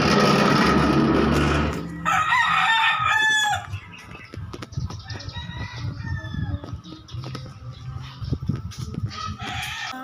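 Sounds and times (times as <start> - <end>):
rooster crowing: 1.8 - 3.8, 9.1 - 10.0.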